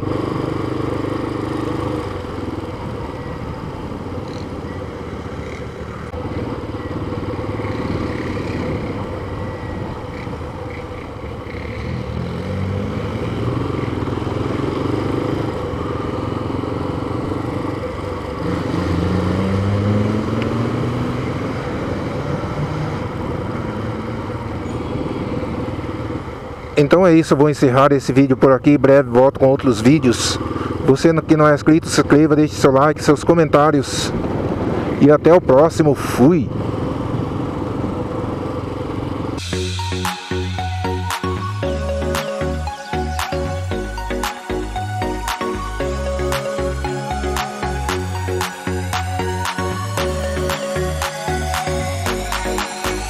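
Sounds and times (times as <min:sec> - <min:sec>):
motorcycle engine accelerating: 0:00.0 - 0:26.9, 0:28.8 - 0:33.0, 0:35.9 - 0:53.0
road and wind noise: 0:00.0 - 0:53.0.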